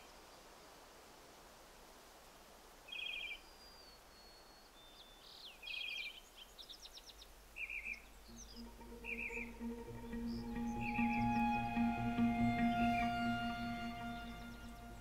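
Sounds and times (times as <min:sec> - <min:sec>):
faint steady hiss: 0:00.0 - 0:15.0
bird chirps: 0:02.9 - 0:15.0
bird trilled calls: 0:07.6 - 0:15.0.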